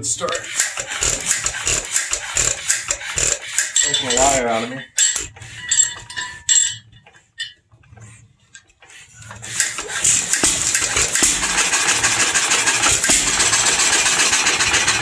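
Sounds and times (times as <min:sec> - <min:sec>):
engine cranking clicks: 0:00.0 - 0:05.5, 0:08.6 - 0:15.0
engine running loudly: 0:09.7 - 0:15.0.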